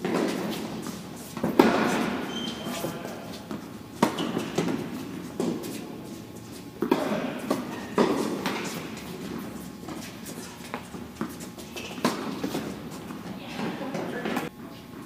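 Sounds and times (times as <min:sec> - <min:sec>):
tennis ball struck by rackets: 0:01.4 - 0:02.2, 0:03.5 - 0:05.6, 0:06.8 - 0:09.5, 0:11.2 - 0:12.7.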